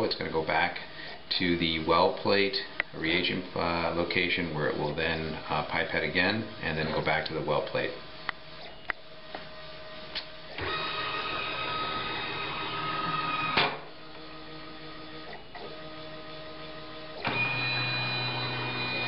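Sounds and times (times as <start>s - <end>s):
stepper motors whining: 10.5s - 15.9s, 17.1s - 19.0s.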